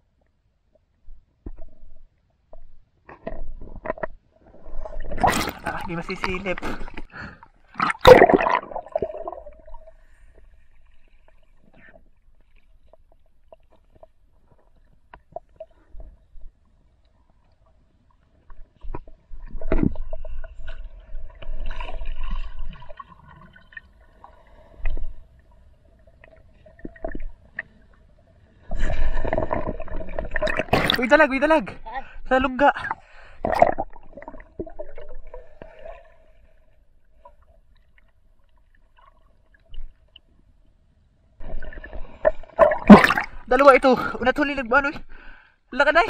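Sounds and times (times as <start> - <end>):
underwater clicks and knocks: 1.1 - 4.2, 18.8 - 20.3
water rumbling and sloshing: 1.2 - 31.8, 32.9 - 43.9.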